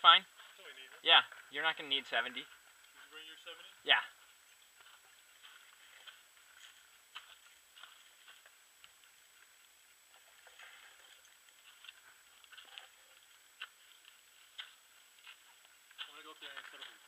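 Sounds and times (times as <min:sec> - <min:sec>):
faint clicks and ticks: 0:04.2 - 0:17.0.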